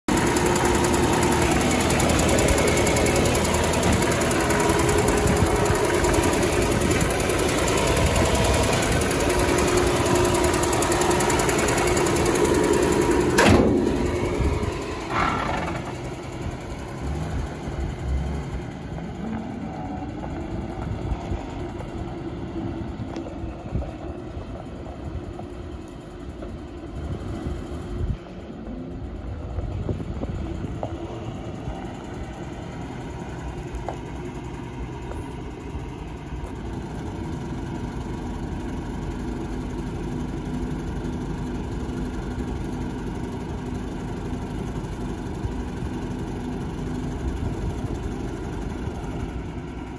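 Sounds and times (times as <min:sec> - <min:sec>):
truck engine idling: 0:00.1 - 0:49.9
sharp bang: 0:13.3 - 0:15.2.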